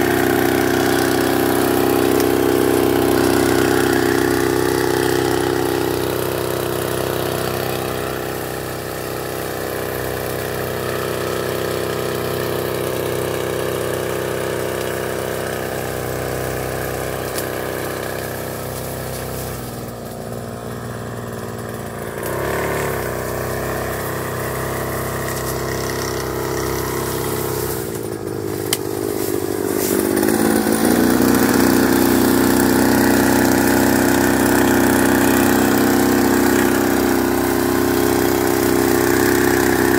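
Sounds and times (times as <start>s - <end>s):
small sprayer engine running: 0.0s - 39.9s.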